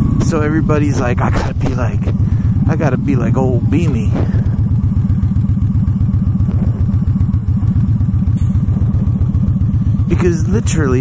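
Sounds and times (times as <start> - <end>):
motorcycle engine running: 0.0 - 11.0.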